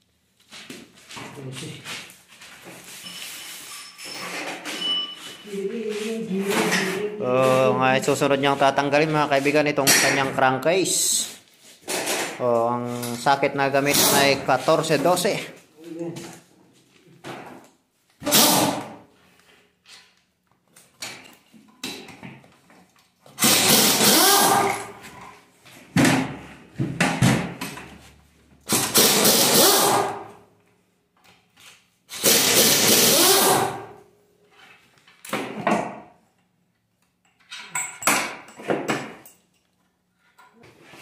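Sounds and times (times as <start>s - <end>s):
impact wrench running: 13.8s - 14.4s, 18.2s - 18.9s, 23.4s - 25.0s, 28.7s - 30.3s, 32.1s - 33.9s.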